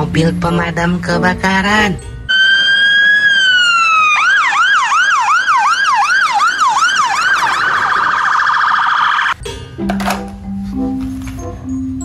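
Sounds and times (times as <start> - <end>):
fire engine siren: 2.3 - 9.4.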